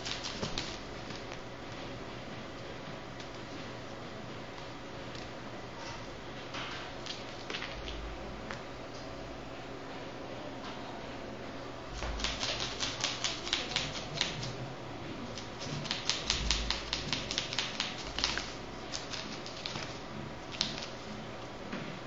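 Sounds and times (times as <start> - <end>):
fingers scratching plastic mat: 12.2 - 14.6, 15.4 - 19.9.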